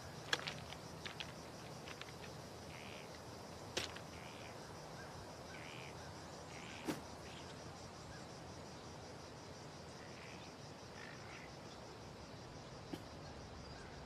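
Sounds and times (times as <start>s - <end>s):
footsteps on gravel: 0.1s - 2.4s, 3.8s - 4.1s.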